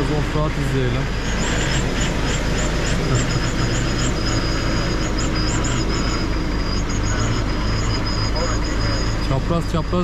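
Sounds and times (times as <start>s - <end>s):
vehicle engine running: 0.0s - 10.0s
high chirping: 1.0s - 10.0s.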